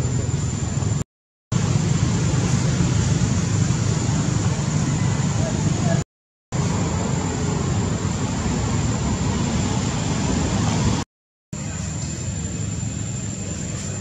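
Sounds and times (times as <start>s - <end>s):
low rumbling background noise: 0.0s - 6.0s, 6.6s - 11.0s.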